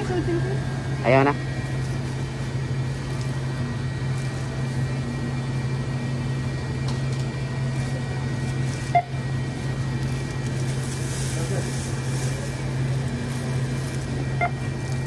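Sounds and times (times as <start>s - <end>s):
low mechanical hum: 0.0s - 15.0s
short beep: 8.9s - 9.2s.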